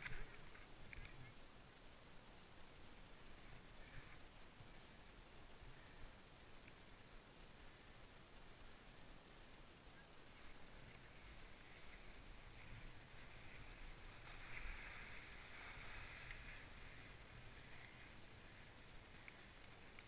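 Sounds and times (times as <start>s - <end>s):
skis sliding over snow: 10.4s - 20.0s.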